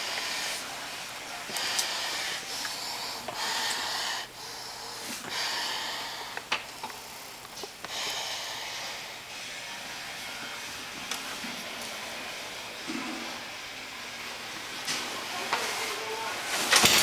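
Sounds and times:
hissing breaths through gas mask: 1.4 - 9.4.

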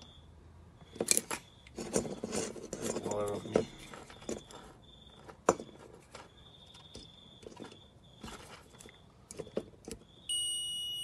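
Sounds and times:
faint high beep: 10.2 - 11.0.

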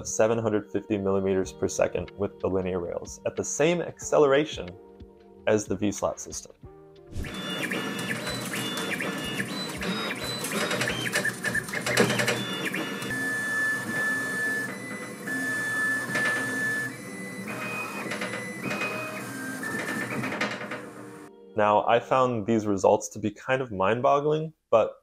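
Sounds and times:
stepper motors whining: 7.2 - 21.3.

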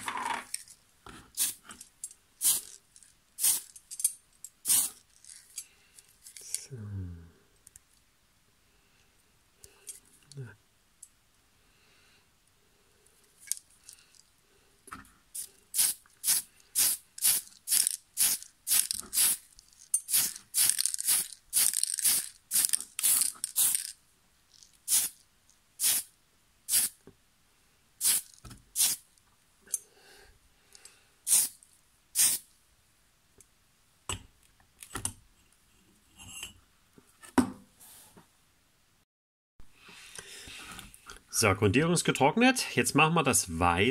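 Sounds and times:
aerosol can spraying in bursts: 1.4 - 1.6, 2.4 - 2.7, 3.4 - 3.7, 4.6 - 5.0, 15.4 - 19.4, 20.1 - 23.9, 24.9 - 25.2, 25.8 - 26.1, 26.7 - 27.0, 28.0 - 29.0, 31.3 - 31.6, 32.2 - 32.4.

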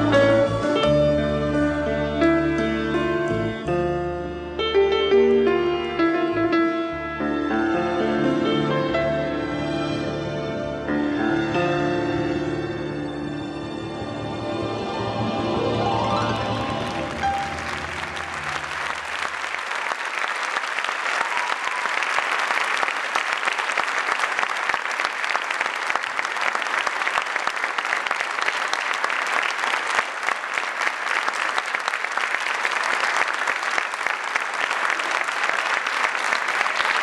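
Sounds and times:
audience applauding: 16.0 - 37.0.

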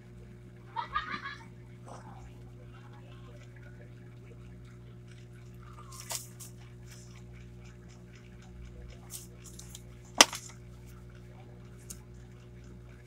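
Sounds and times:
steady low hum: 0.0 - 13.0
paper handling: 5.9 - 7.1, 9.1 - 10.6.

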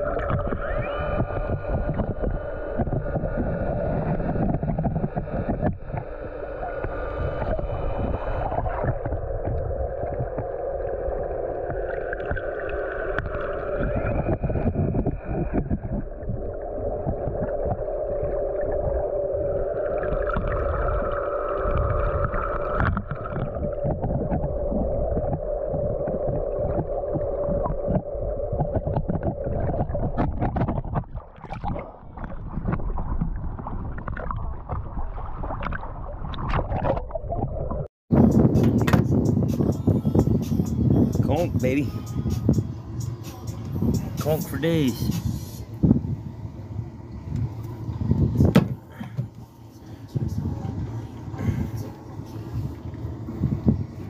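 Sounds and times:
underwater motor drone: 0.0 - 37.8, 40.0 - 54.0
water splashing: 0.0 - 37.9
water rumble on microphone: 0.0 - 54.0.

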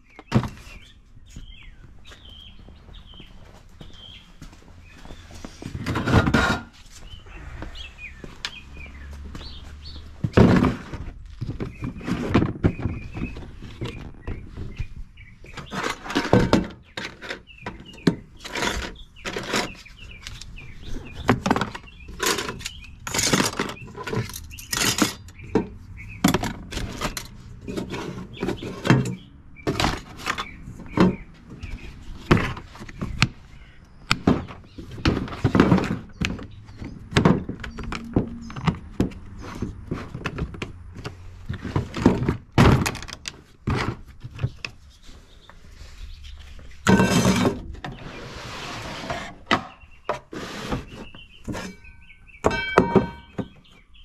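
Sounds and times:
knocks thunks and clatter: 0.2 - 1.7, 7.8 - 20.1, 20.9 - 44.8, 52.4 - 53.9.

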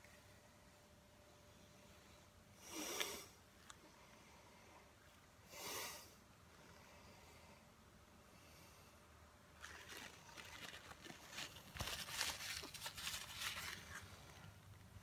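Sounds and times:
paper napkins crinkling: 9.6 - 14.9.

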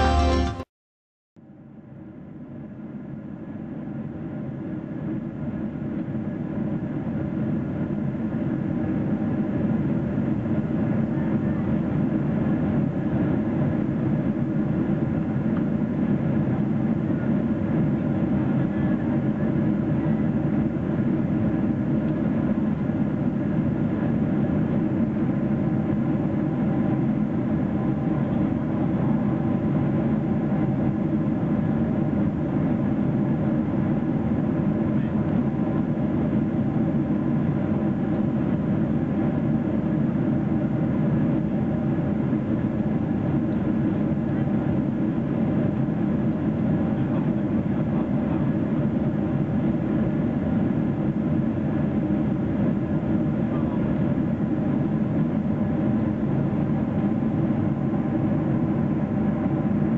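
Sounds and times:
airplane cabin engine rumble: 1.8 - 59.9.

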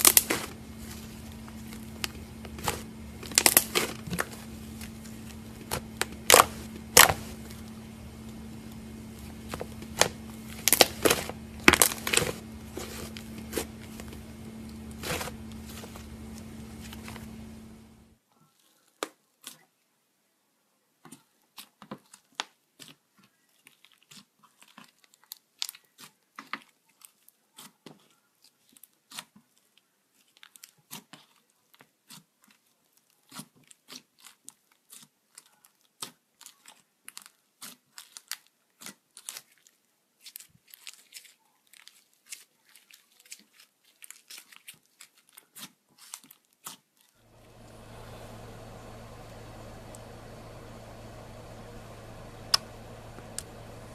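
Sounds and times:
slime crackling and popping: 0.0 - 17.8.

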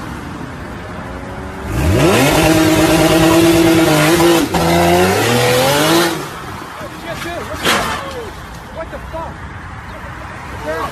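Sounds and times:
car engine revving hard: 1.6 - 6.4.

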